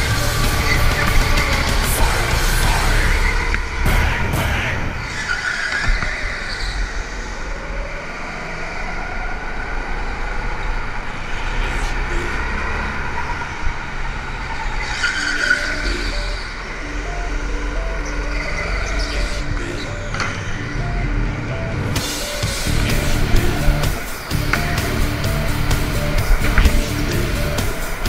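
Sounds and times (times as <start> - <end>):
music: 0.0 - 5.2, 15.2 - 28.0
go-kart engines running: 0.0 - 28.0.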